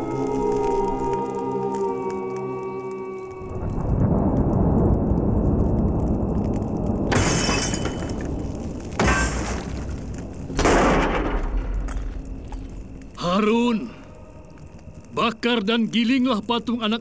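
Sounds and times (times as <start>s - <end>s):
steady low rumble: 3.4s - 9.0s
stone tablets smashing: 7.1s - 12.0s.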